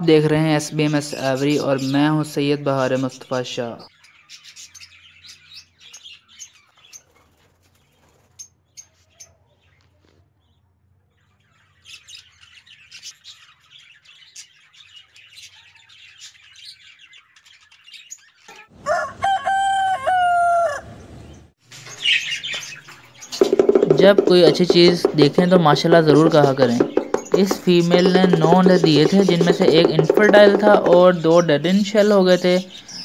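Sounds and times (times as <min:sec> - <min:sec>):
budgerigars chirping: 0:00.5 - 0:09.8, 0:10.5 - 0:18.7, 0:21.2 - 0:33.0.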